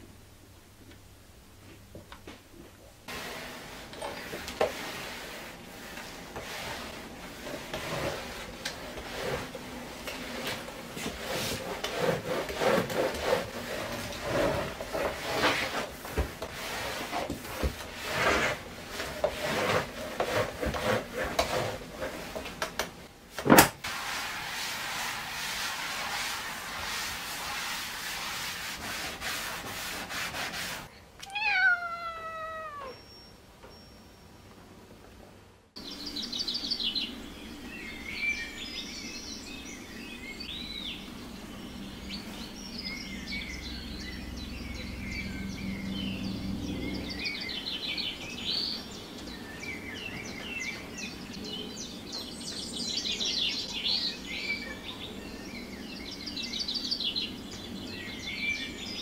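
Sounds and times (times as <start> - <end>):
mop swishing over wooden floor: 3.1 - 22.6, 23.8 - 30.9
cat meowing: 31.2 - 33.0.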